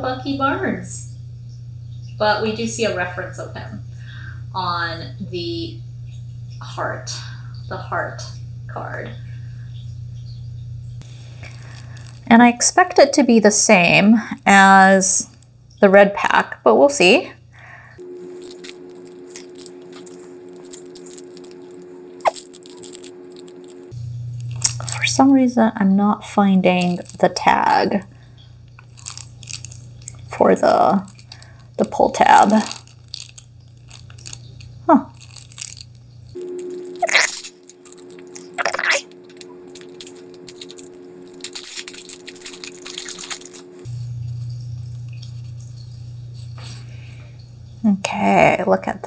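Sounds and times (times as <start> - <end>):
steady background hum: 0.0 - 49.0
cellophane crinkling: 11.0 - 15.6, 17.6 - 25.6, 26.2 - 47.2.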